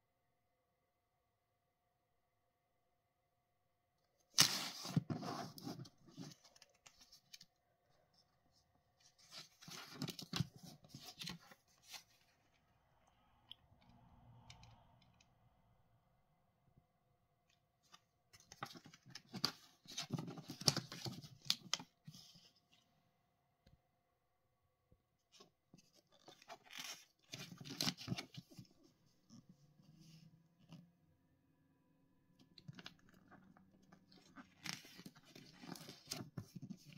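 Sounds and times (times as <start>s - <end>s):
paper pages rustling: 4.4s - 7.5s, 9.0s - 12.5s, 17.8s - 22.5s, 25.4s - 28.8s, 34.0s - 36.9s.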